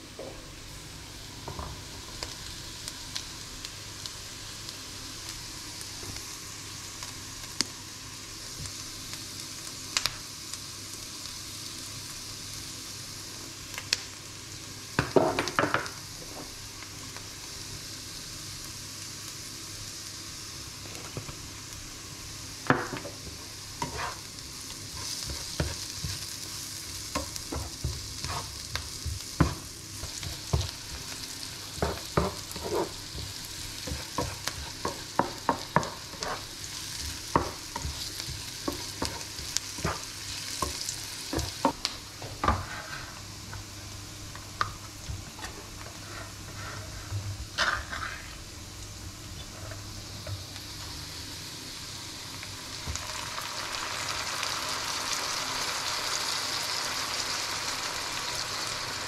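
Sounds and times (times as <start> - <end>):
vegetables sizzling in frying pan: 0.0 - 59.0
spatula scraping and knocking pan: 22.7 - 24.2, 24.9 - 26.3, 27.2 - 43.2.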